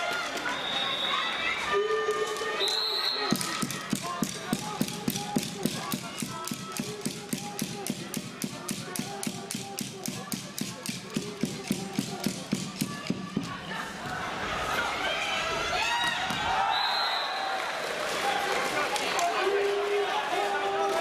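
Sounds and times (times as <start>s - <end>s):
faint voices: 0.0s - 15.8s
cheering clacks: 0.0s - 21.0s.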